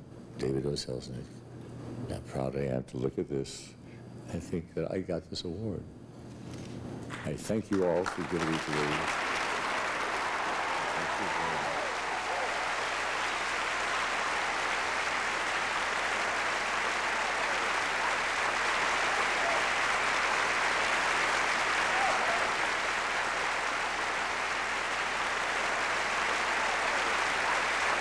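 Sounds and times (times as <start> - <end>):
audience applauding: 7.1 - 28.0.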